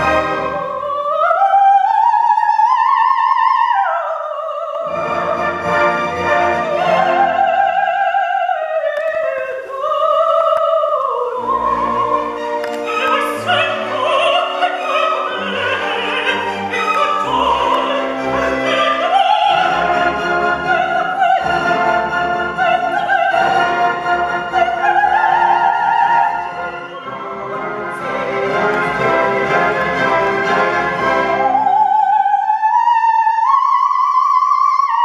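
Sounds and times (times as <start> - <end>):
orchestra playing: 0.0 - 1.3, 4.8 - 8.5, 11.1 - 32.2
strings: 0.0 - 2.7, 4.4 - 32.5
woman singing opera: 0.0 - 29.4, 31.0 - 35.0.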